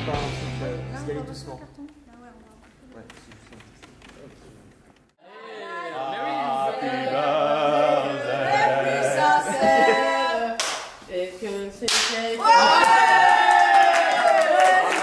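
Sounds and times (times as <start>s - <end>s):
voices singing unaccompanied: 5.2s - 12.4s
hand claps: 10.6s - 11.0s, 11.9s - 15.0s.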